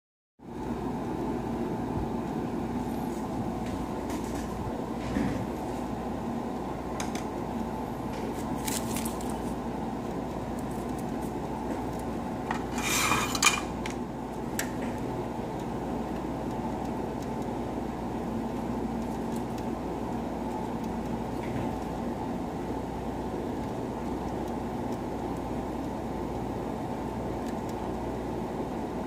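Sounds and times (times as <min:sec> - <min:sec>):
steady low hum: 0:00.4 - 0:29.0
soldering iron scraping stand: 0:12.5 - 0:14.0.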